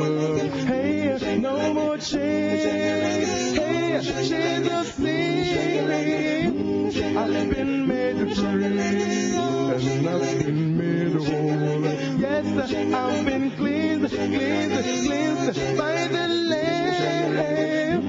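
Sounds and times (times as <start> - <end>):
men singing a cappella harmony: 0.0 - 18.0.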